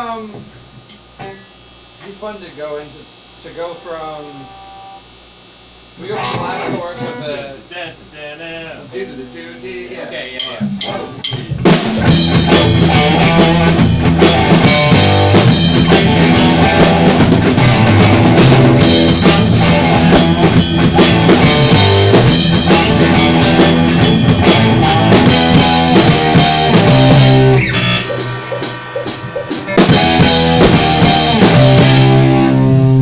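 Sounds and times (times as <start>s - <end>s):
rock band playing live: 6.1s - 7.5s, 8.9s - 33.0s.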